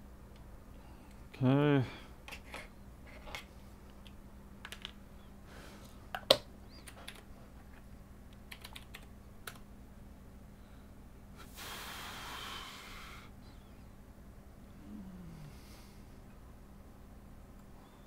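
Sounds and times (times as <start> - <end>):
keys and small parts clicking: 6.8 - 7.3, 8.5 - 9.6.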